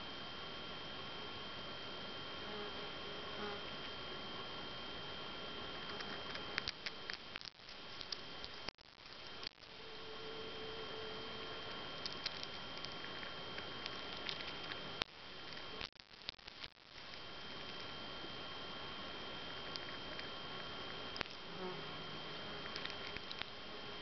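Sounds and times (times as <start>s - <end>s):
chipmunk cracking seed shells: 5.8s - 9.6s, 12.0s - 17.9s, 19.6s - 20.3s, 21.2s - 21.4s, 22.6s - 23.6s
thin high tone: 9.7s - 12.5s.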